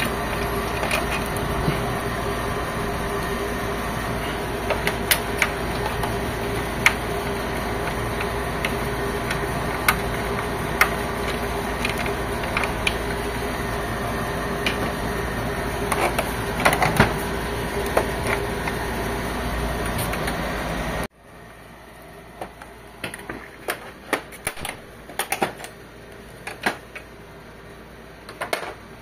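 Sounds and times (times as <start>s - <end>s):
steady background hum: 0.0s - 29.0s
clicks and knocks dismantling printer: 22.4s - 25.8s, 26.4s - 27.1s, 28.3s - 28.8s.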